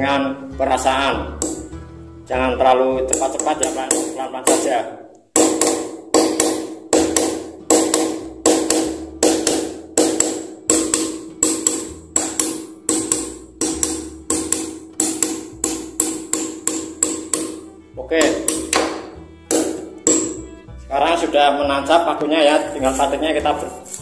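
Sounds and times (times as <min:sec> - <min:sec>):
hammer tapping a nail: 0:01.4 - 0:01.8, 0:03.1 - 0:04.8, 0:05.4 - 0:20.5.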